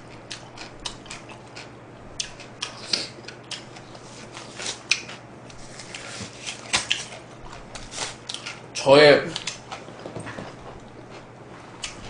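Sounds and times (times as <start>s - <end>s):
paper tissue rustling: 3.9s - 4.8s, 5.5s - 8.3s
plastic gloves crinkling: 5.5s - 8.5s.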